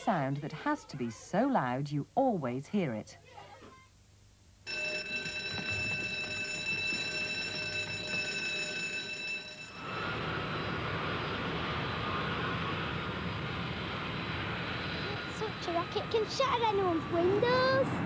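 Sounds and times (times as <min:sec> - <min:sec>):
fire alarm ringing: 0:04.7 - 0:10.7
jet engine noise: 0:09.7 - 0:18.0.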